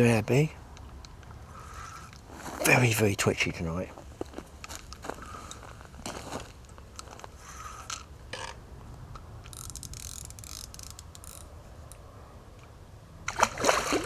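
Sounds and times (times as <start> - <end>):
fishing reel ratchet clicks: 9.5 - 11.5.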